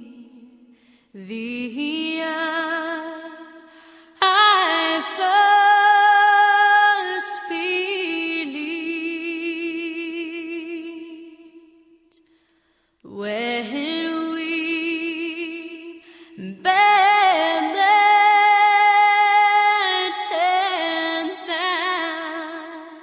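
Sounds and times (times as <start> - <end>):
woman singing with vibrato: 0.0 - 12.1, 13.1 - 23.0.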